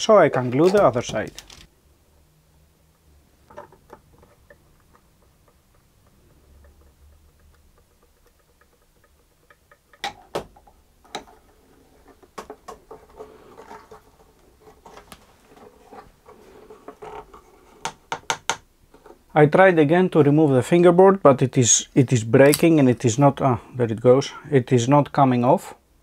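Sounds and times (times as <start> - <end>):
faint ticking: 2.1 - 11.3.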